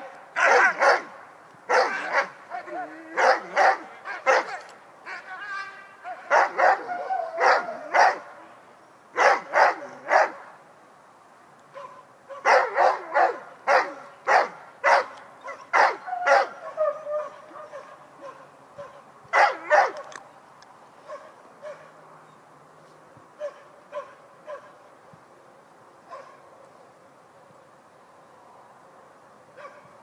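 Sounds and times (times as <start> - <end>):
dog barking: 0.4 - 1.1, 1.7 - 2.4, 3.2 - 4.6, 6.1 - 8.2, 9.2 - 10.4, 11.8 - 16.6, 17.2 - 20.0, 21.1 - 21.9, 23.4 - 24.8, 26.1 - 26.4, 29.6 - 29.9.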